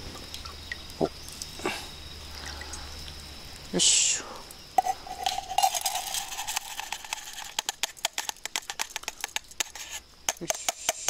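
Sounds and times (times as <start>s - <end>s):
rice grains rustling: 4.8s - 10.0s.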